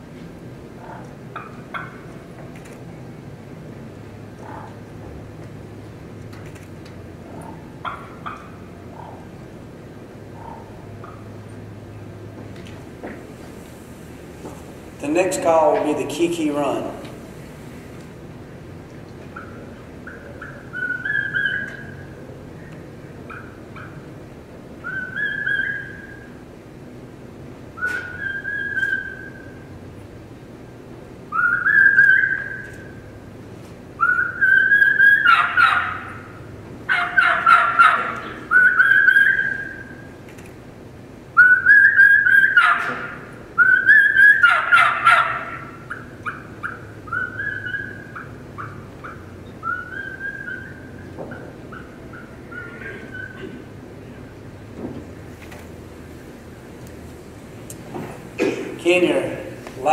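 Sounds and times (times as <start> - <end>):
raspy yelping calls: 0.8 - 2.3, 4.3 - 4.9, 7.1 - 11.5, 19.3 - 24.2, 24.8 - 26.4, 27.7 - 29.7, 31.3 - 33.1, 33.9 - 40.2, 41.3 - 53.7
turkey caller whistled kee notes: 27.8 - 29.6, 31.3 - 32.9, 34.0 - 35.3, 41.4 - 42.7, 43.6 - 44.5, 46.6 - 51.2.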